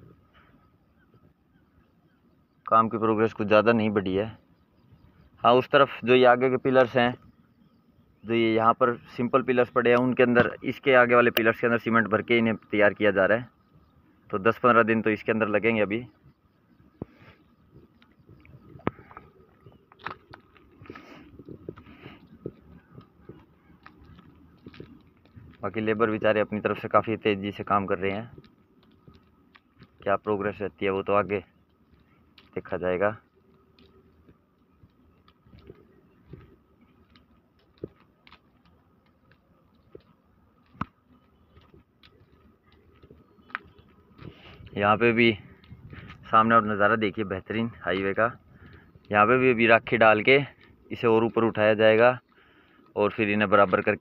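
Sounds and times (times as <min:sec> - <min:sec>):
footsteps on gritty concrete: 0:16.8 - 0:54.0
small clicks: 0:16.9 - 0:46.8.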